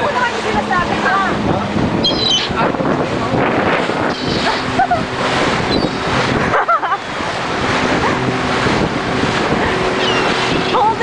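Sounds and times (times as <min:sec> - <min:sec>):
rush of wind and water: 0:00.0 - 0:11.0
wind buffeting microphone: 0:00.0 - 0:11.0
gull calls: 0:02.0 - 0:02.6, 0:04.1 - 0:04.7, 0:10.0 - 0:10.8.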